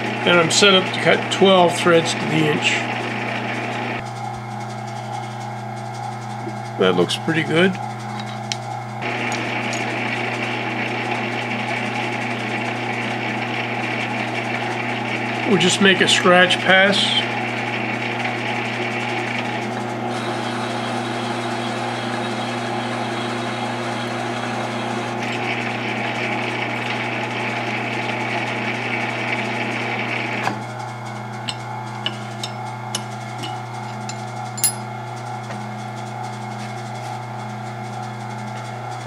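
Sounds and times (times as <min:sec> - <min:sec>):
lathe humming: 0:00.0 - 0:39.0
tool scraping steel: 0:31.4 - 0:35.0.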